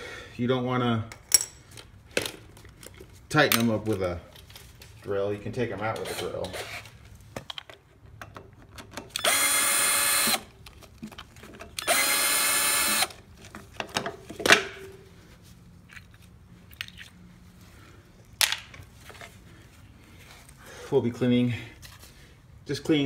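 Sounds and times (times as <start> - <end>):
power drill running: 9.2 - 10.5, 11.8 - 13.2.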